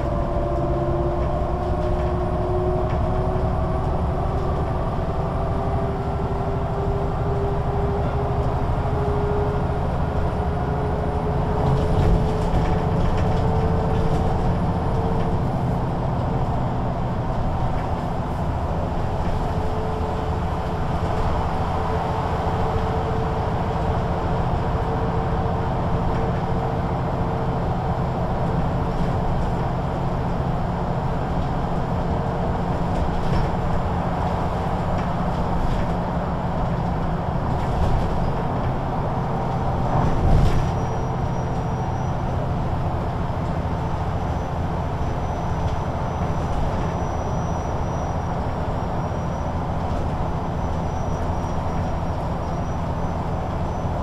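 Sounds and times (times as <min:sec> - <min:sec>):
bus diesel engine rumbling: 0:00.0 - 0:54.0.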